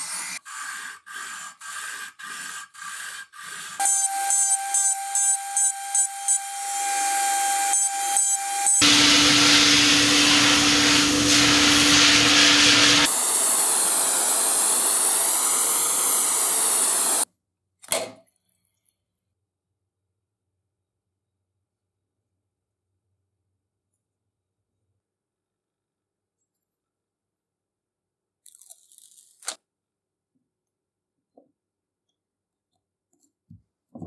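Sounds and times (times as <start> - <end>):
power tool high whine: 3.8 - 17.2
loud hiss: 8.6 - 17.2.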